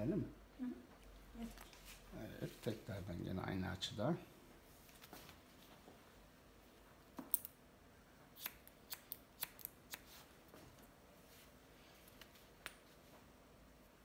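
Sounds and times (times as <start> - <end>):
scissors snipping hair: 8.4 - 10.1.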